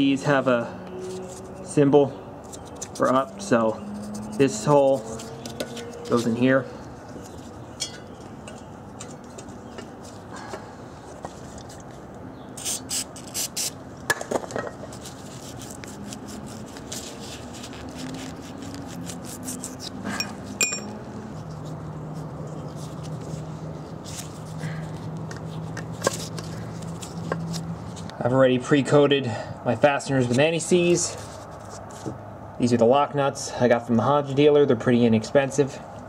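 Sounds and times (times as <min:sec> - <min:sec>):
light metal clinks and taps: 0:07.8 - 0:09.9, 0:20.2 - 0:21.0.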